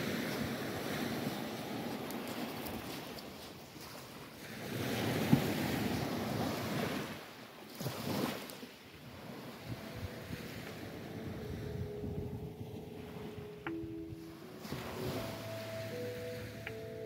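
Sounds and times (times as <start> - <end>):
small waves breaking on shore: 0.0 - 17.0
wind buffeting microphone: 9.0 - 16.0.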